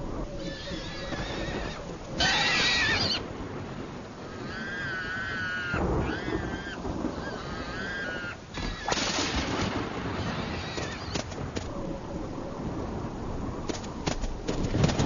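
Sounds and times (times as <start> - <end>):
horse whinnying: 0.4 - 3.2, 4.6 - 9.1.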